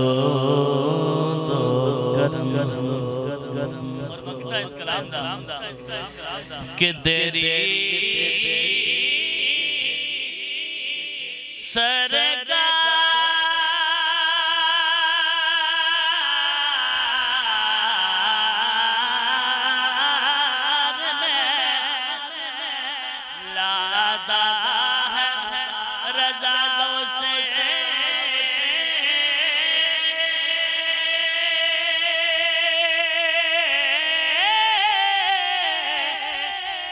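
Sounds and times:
man singing into a microphone: 0.0s - 36.9s.

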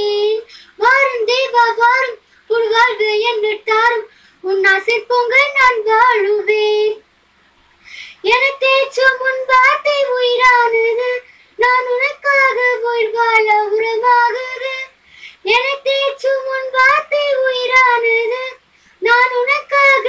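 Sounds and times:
girl singing solo: 8.2s - 20.0s.

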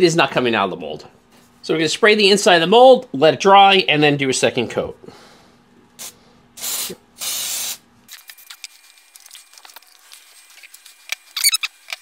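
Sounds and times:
aerosol can spraying: 6.0s - 9.0s.

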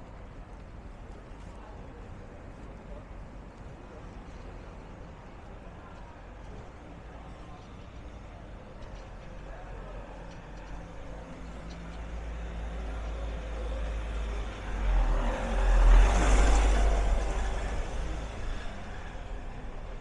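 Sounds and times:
vehicle engine rumbling: 8.7s - 20.0s.

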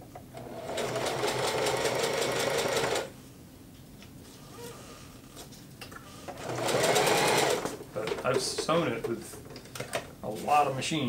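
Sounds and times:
sewing machine stitching: 0.3s - 3.1s, 6.4s - 7.8s.

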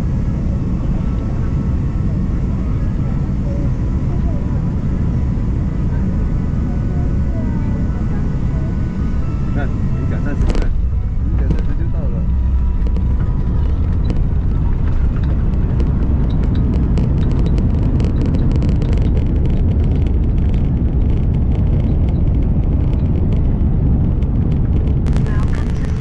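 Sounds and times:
tyres and engines rumbling: 0.0s - 26.0s
dense crackle of clicks: 10.4s - 26.0s.

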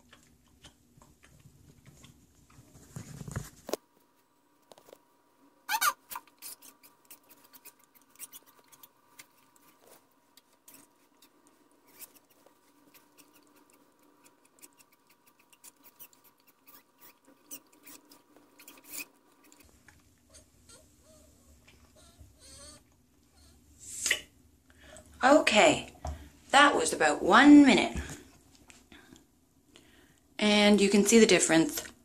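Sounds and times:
short falling squeak: 5.7s - 6.0s
handling clicks and rubs: 6.1s - 20.1s.

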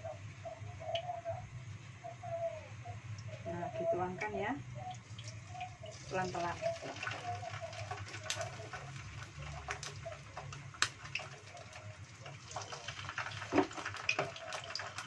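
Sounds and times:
fish sizzling in hot oil: 4.9s - 15.0s.

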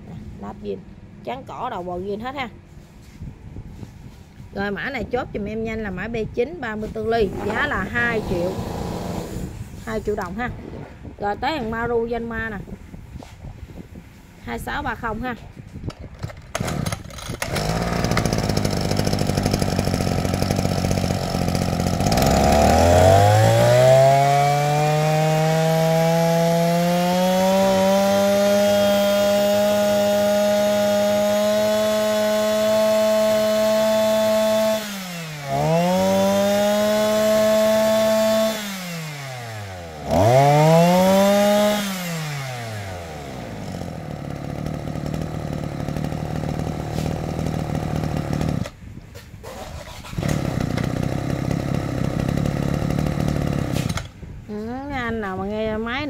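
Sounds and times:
brush cutter engine revving: 6.8s - 10.3s, 16.2s - 54.3s.

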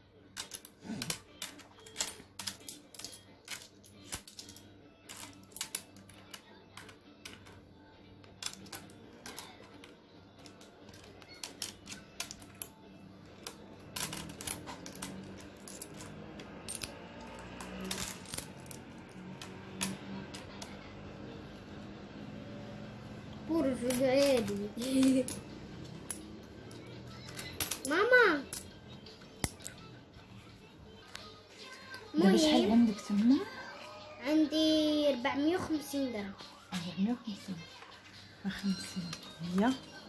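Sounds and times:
coins clinking on glass: 0.4s - 6.4s, 13.4s - 20.5s, 23.8s - 28.8s.

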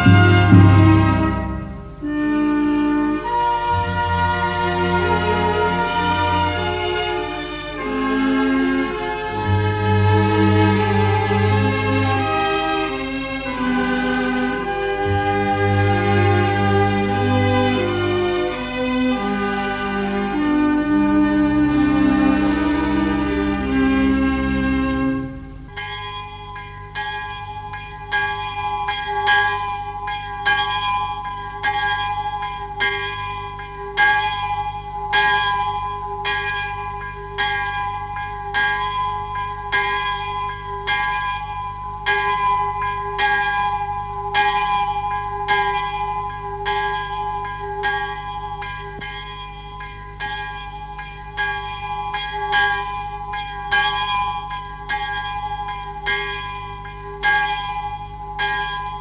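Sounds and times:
low hum: 0.0s - 2.3s, 15.0s - 27.0s
church bell tolling: 0.0s - 59.0s.

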